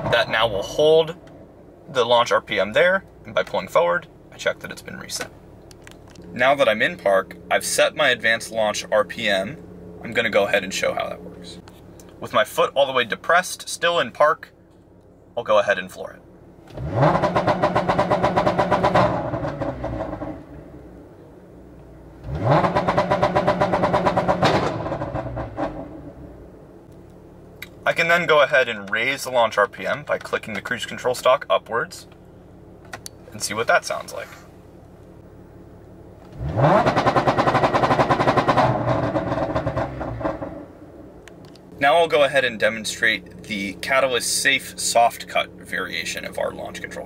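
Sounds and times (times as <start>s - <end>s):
exhaust popping and crackling: 0.0s - 47.0s
engine popping on rev limiter: 16.6s - 20.6s, 22.2s - 26.2s, 36.2s - 40.8s.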